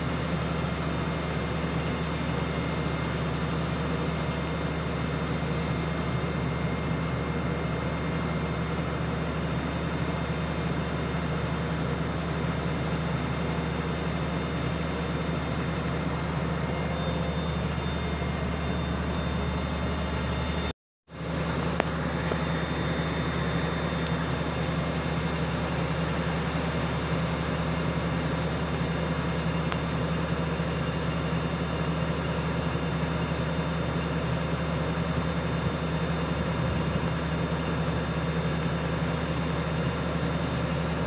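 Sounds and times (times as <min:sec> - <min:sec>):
diesel engine drone: 0:00.0 - 0:41.0
faint high whine: 0:14.5 - 0:20.7, 0:21.6 - 0:25.4.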